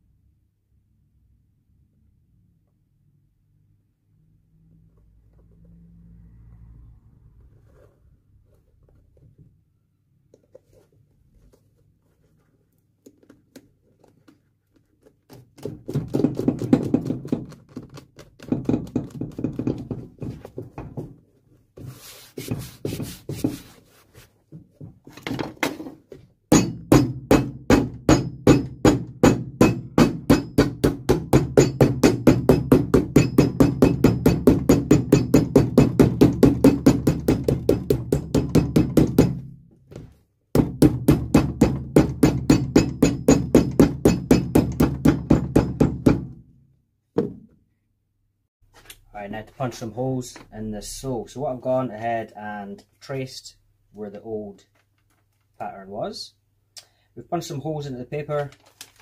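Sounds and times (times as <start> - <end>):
hammer beating rubber sole: 15.0 - 21.2, 21.8 - 23.8, 26.5 - 46.5.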